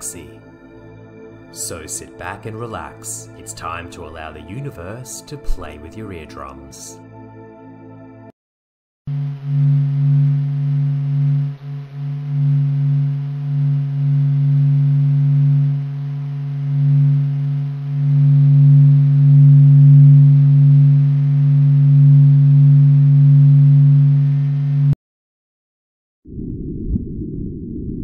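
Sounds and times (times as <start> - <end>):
deep droning hum: 9.1 - 25.0.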